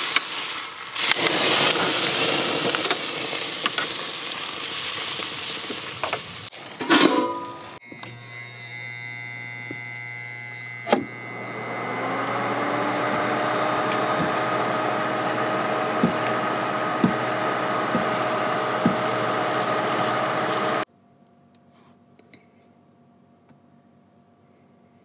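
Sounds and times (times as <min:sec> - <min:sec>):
electric fan whirring: 0:07.3 - 0:20.9
electrical hum: 0:07.3 - 0:20.9.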